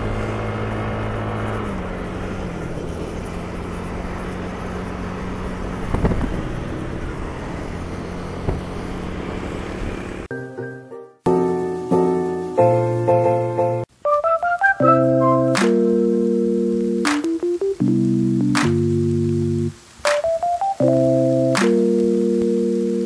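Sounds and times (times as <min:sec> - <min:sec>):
motorcycle engine cruising: 0:00.0 - 0:10.3
wind and road noise: 0:00.0 - 0:10.3.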